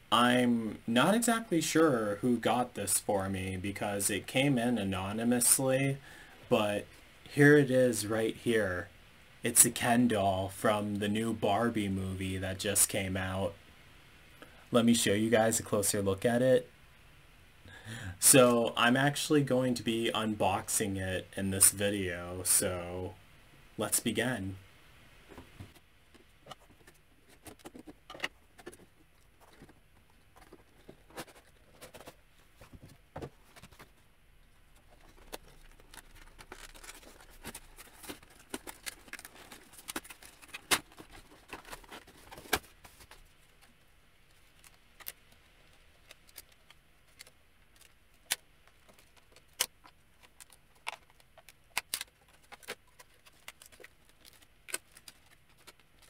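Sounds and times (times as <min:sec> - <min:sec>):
packaging crinkling and rustling: 0:34.7 - 0:56.0
sharp plastic snaps: 0:46.0 - 0:55.9.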